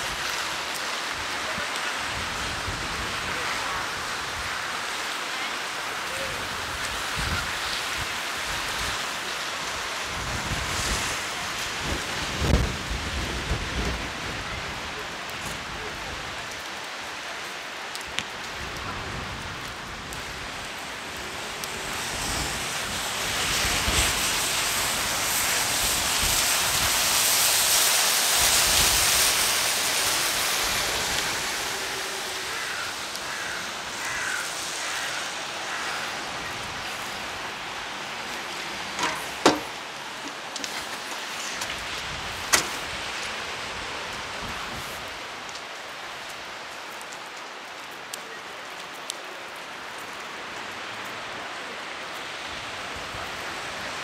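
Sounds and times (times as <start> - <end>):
heavy rain hissing: 0.0 - 54.0.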